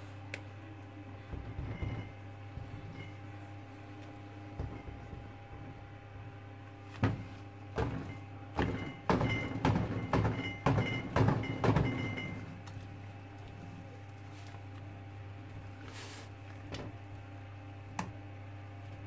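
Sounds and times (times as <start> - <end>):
mold knocking on steel counter: 7.0 - 12.5.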